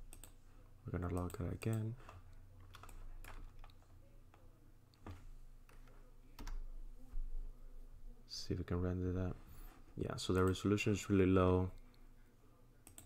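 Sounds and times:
computer keyboard clicks: 0:00.1 - 0:00.4, 0:01.1 - 0:03.8.

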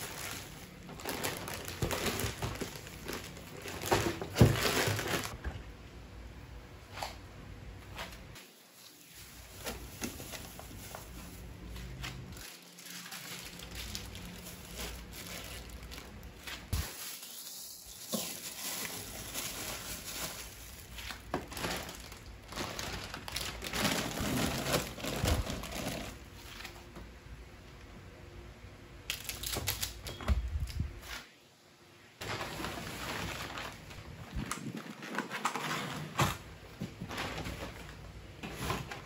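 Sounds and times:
plastic packaging crinkling: 0:00.0 - 0:05.4, 0:08.7 - 0:26.8, 0:32.2 - 0:35.7.

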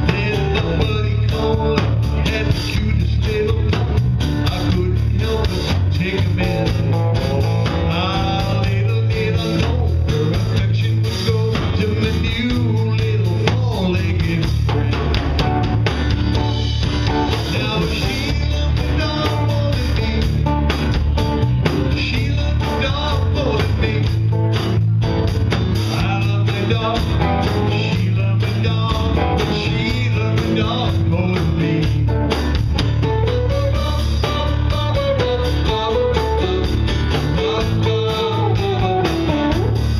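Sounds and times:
man singing: 0:00.0 - 0:15.5, 0:17.2 - 0:24.7, 0:25.8 - 0:39.9
drums: 0:00.0 - 0:39.9
electric guitar: 0:00.0 - 0:39.9
acoustic guitar strumming: 0:13.6 - 0:39.9.

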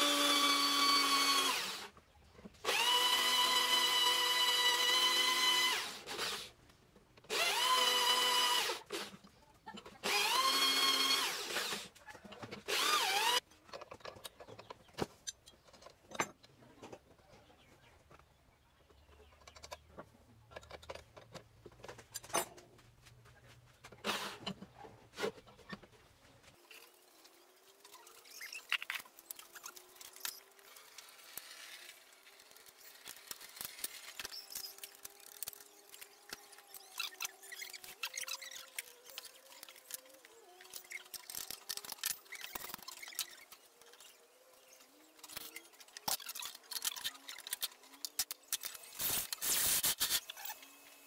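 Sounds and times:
drill bit cutting steel: 0:12.7 - 0:13.4.

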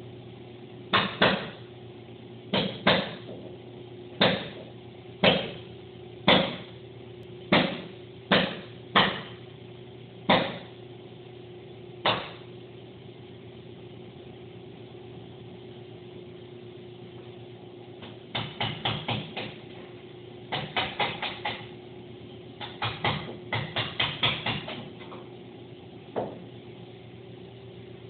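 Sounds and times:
sharp knocks: 0:07.5 - 0:09.4.

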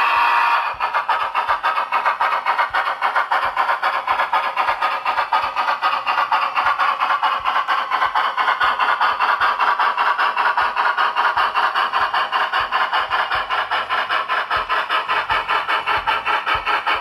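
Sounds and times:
steam whistle blast: 0:00.0 - 0:00.8
locomotive exhaust chuffs: 0:00.0 - 0:17.0.

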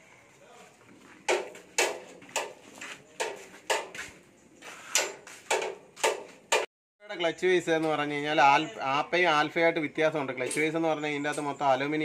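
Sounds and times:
sharp knocks: 0:01.3 - 0:02.6, 0:05.0 - 0:06.7.

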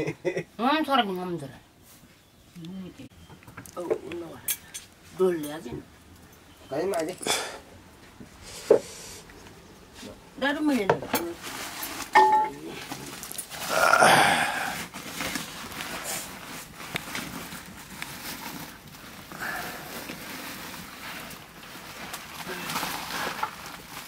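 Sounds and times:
plastic sack rustling: 0:11.3 - 0:24.0.

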